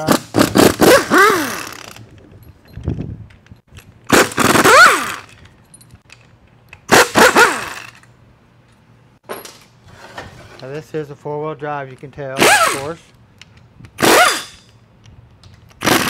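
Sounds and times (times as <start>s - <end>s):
pneumatic impact wrench hammering: 0.0s - 2.0s, 4.1s - 5.4s, 6.8s - 8.1s, 12.4s - 13.0s, 13.9s - 14.8s, 15.6s - 16.0s.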